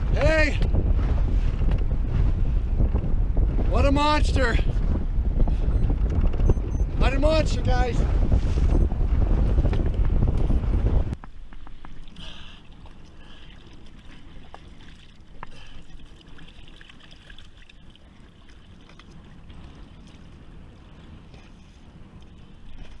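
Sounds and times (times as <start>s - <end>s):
low steady rumble: 0.0s - 23.0s
water trickling and lapping: 11.2s - 23.0s.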